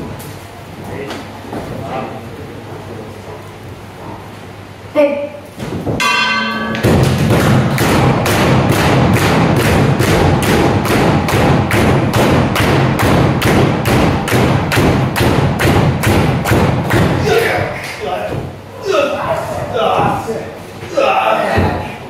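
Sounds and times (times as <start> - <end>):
loud sharp knocks: 5.6 - 17.6
bell ringing: 6.0 - 6.9.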